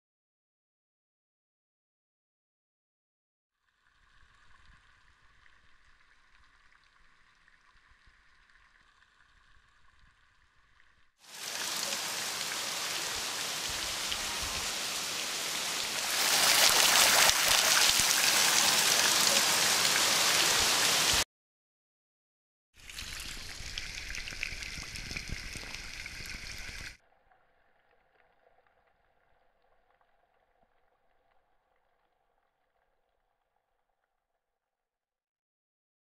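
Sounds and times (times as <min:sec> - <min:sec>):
waterfall splashing on rock: 0:11.3 - 0:21.2
faint high tone: 0:12.9 - 0:14.9.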